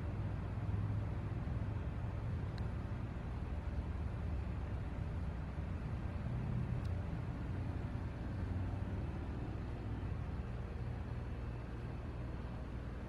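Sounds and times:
low outdoor rumble: 0.0 - 13.0
faint tick: 2.5 - 2.7, 6.8 - 7.0.

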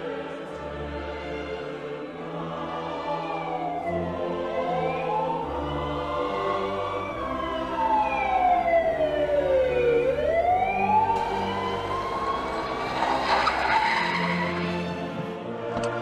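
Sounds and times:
siren wailing: 2.9 - 15.2
rushing noise: 11.8 - 15.2.

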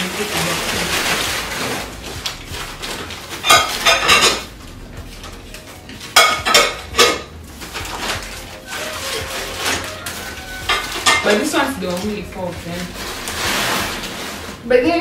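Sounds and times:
paper wrapping rustling: 0.0 - 15.0
glass bowls clinking: 3.3 - 4.6, 6.0 - 7.4, 8.7 - 12.1.

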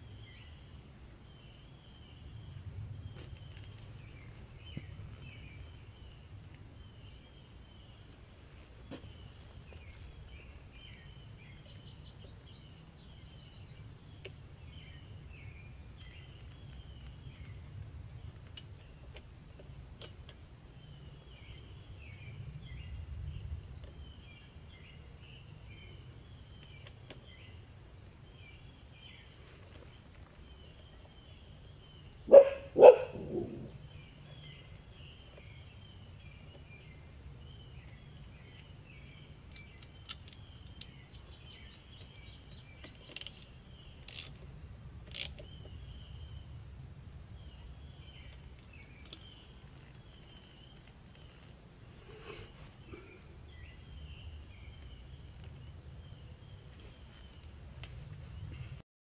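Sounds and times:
dog barking: 32.3 - 33.7.

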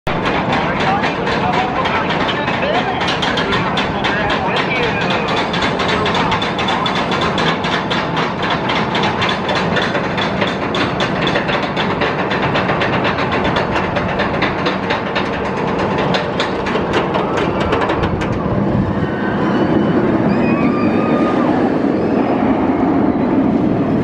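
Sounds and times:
lift chain running: 0.1 - 18.8
roller coaster ratchet clacking: 0.1 - 22.8.

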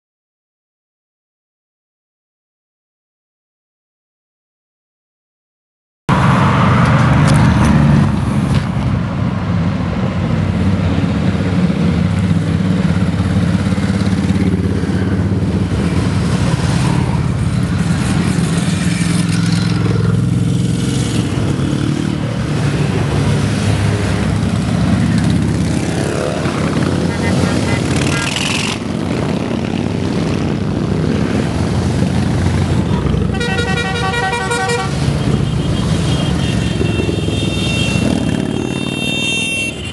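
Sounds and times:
motorcycles riding past: 6.2 - 39.9.

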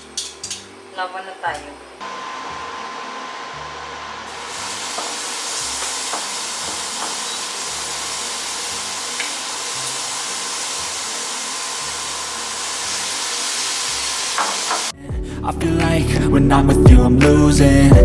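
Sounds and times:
metal tongs clicking on pan: 0.0 - 0.7
chicken sizzling in oil: 4.2 - 14.9.

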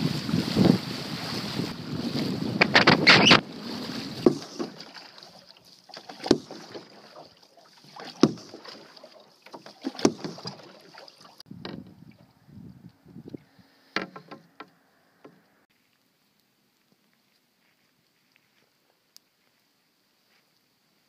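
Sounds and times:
wind on microphone: 0.0 - 4.8, 11.5 - 13.8
waves washing over rocks: 0.0 - 5.4
canoe paddle strokes: 0.0 - 12.3.

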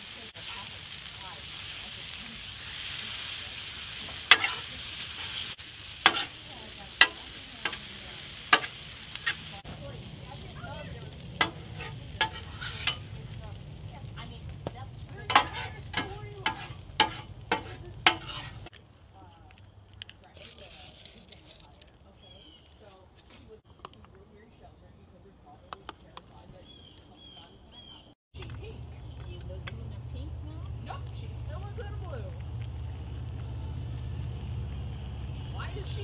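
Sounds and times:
vegetables sizzling on griddle: 0.0 - 18.7
metal spatula scraping griddle: 2.5 - 9.6, 10.3 - 13.9, 15.0 - 18.7.

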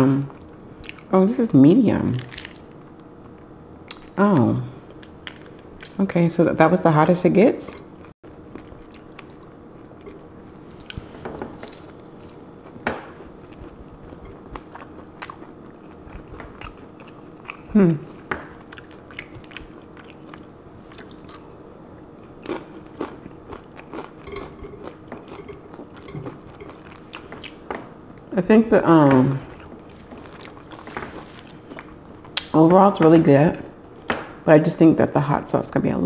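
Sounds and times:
chewing and crunching taco: 0.3 - 1.1, 2.2 - 4.2, 4.9 - 6.0, 7.7 - 28.3, 29.4 - 32.6.

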